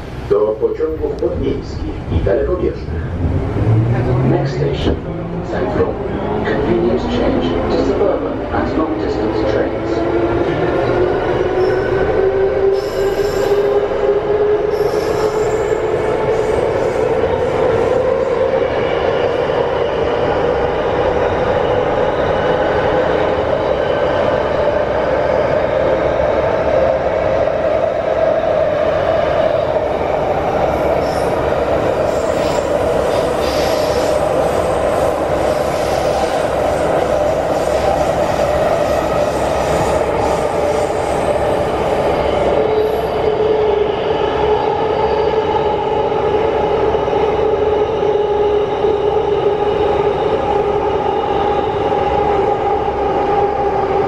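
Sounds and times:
train rumble in tunnel: 0.0s - 54.0s
high wheel squeal: 12.7s - 13.8s, 14.7s - 15.8s.

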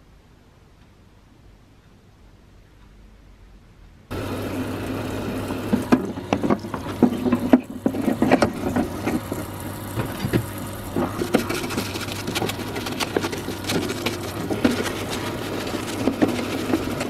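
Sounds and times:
pump humming: 4.1s - 17.0s.

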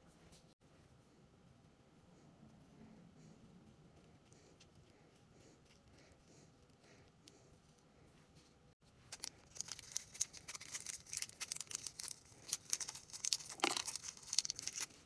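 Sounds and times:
plastic wrapper crinkling and tearing: 9.1s - 15.0s.

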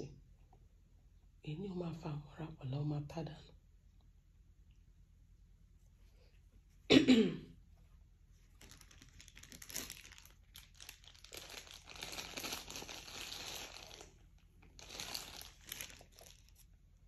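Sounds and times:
faint crinkling and rustling: 7.7s - 17.0s.

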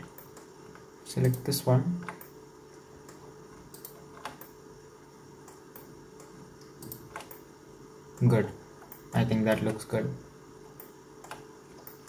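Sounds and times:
faint hum: 0.0s - 12.0s
keyboard and mouse clicks: 3.0s - 4.6s, 5.4s - 7.4s, 8.2s - 9.9s, 10.8s - 12.0s.

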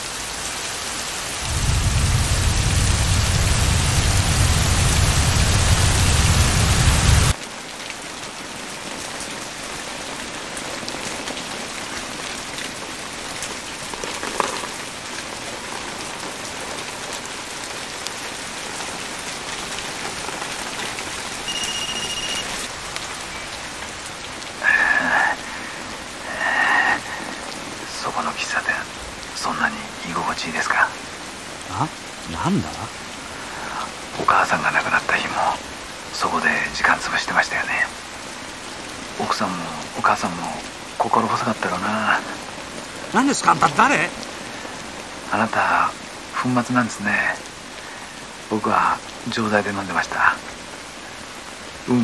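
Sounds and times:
heavy rain pouring: 0.0s - 52.0s
deep rumble: 1.4s - 7.3s
short high beep: 21.5s - 22.7s.

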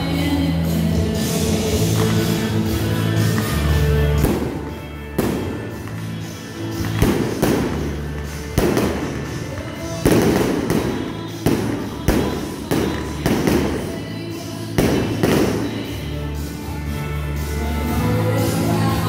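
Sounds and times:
music playing: 0.0s - 19.0s
fireworks bursting with bangs: 1.8s - 16.6s.

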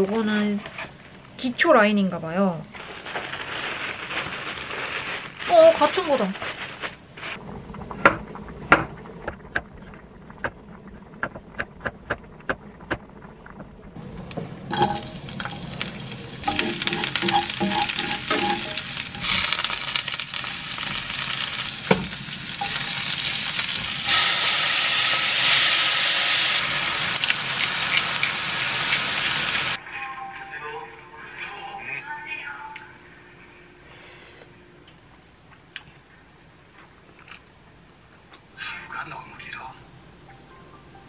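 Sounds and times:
garlic sizzling in oil: 14.0s - 29.8s.

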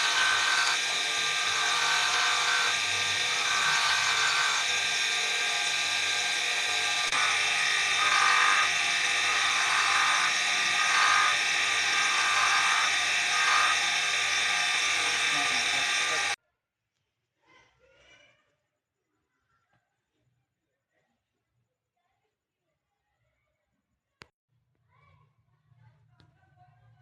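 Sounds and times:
sanding drum motor whirring: 0.0s - 16.4s
wood rasping on sander: 0.0s - 16.4s.

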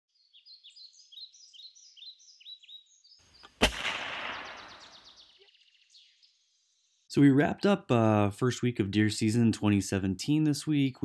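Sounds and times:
birds chirping: 0.1s - 8.3s
gunshot echoing: 3.5s - 5.2s.

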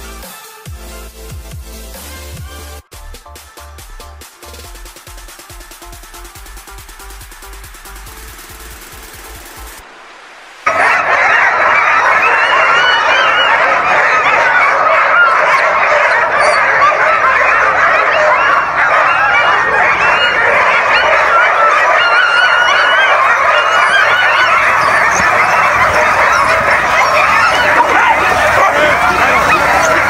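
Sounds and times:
sled dogs barking and yelping: 10.6s - 30.0s.

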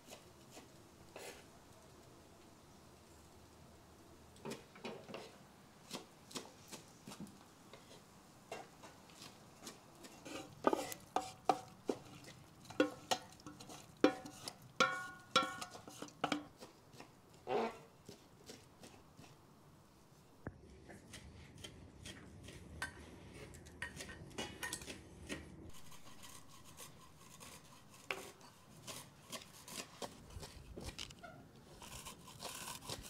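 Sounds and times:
wooden spoon scraping pot: 6.6s - 19.4s, 23.4s - 33.0s
steel pot clanking on colander: 12.7s - 16.5s.

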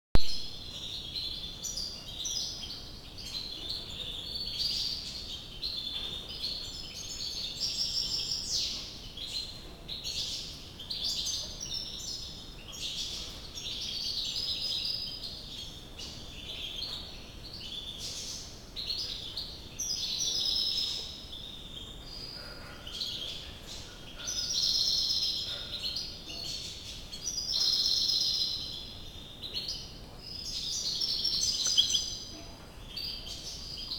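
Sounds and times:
goldfinch twittering song: 22.9s - 32.3s.

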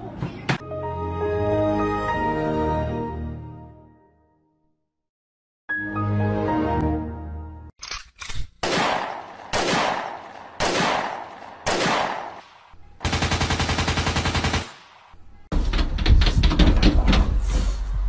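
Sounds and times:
gunshots with echo: 8.6s - 15.2s
machine-gun burst: 13.0s - 14.8s.

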